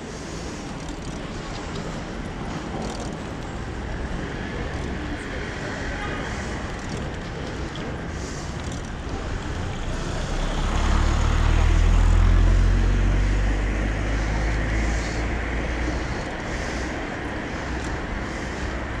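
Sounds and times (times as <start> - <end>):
car passing by: 4.2 - 19.0.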